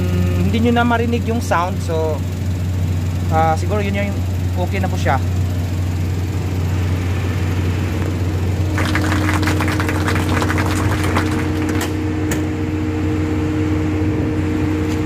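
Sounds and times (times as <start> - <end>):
car engine idling: 0.0 - 15.0
rapid clicks and rattles: 8.7 - 12.0.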